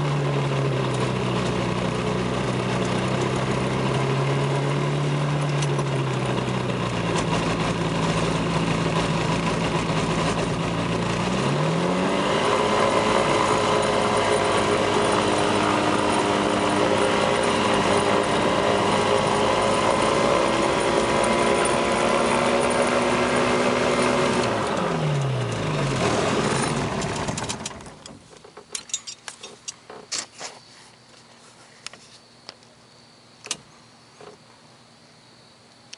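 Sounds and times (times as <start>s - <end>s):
ultralight aircraft engine running: 0.0s - 28.3s.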